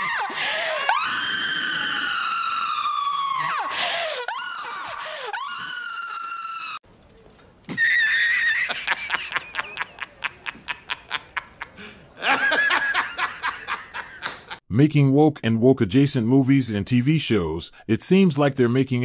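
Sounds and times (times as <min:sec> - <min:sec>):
woman screaming into a microphone: 0:00.0 - 0:06.8
man laughing hard: 0:07.7 - 0:14.6.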